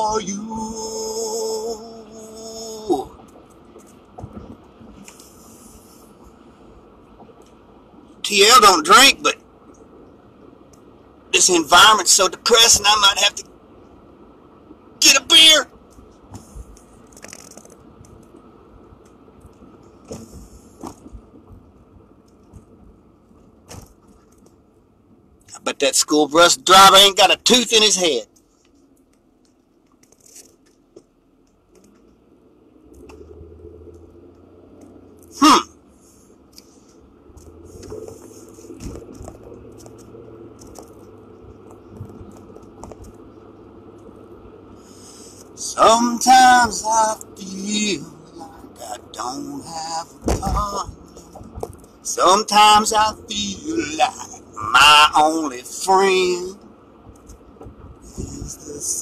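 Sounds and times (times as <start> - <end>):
road and engine rumble: 0.0 - 59.0
small clicks and rattles: 15.9 - 18.4, 37.4 - 43.2
clicks and rustles: 15.9 - 21.4, 28.3 - 32.2, 36.5 - 43.2, 50.2 - 52.0.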